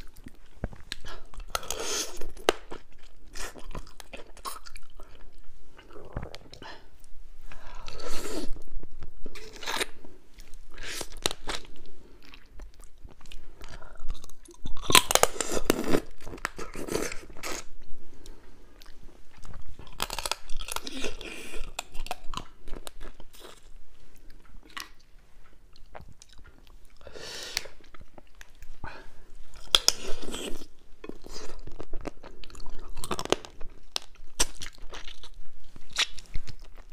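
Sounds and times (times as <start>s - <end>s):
crunching and chewing crab: 0.0s - 6.6s, 10.7s - 17.8s, 18.8s - 23.7s, 29.5s - 36.9s.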